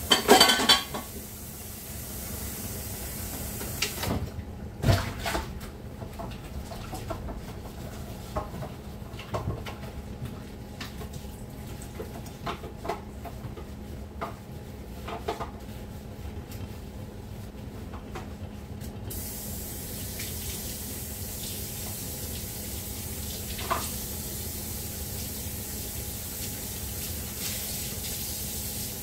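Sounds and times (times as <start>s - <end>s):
dishes and utensils clinking: 0.1s - 1.1s
hiss: 19.1s - 20.3s.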